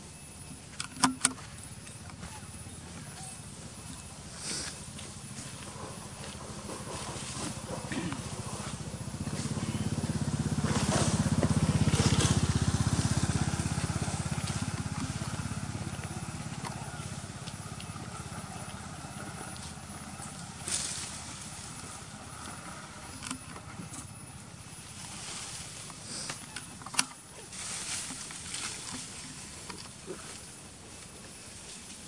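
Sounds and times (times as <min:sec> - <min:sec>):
passing vehicle engine drone: 0:05.4 - 0:26.3.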